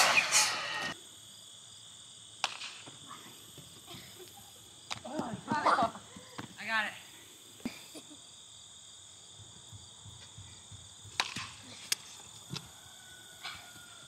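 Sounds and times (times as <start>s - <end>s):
insect drone: 0.0s - 14.0s
bat striking ball: 2.4s - 2.9s, 11.2s - 11.6s.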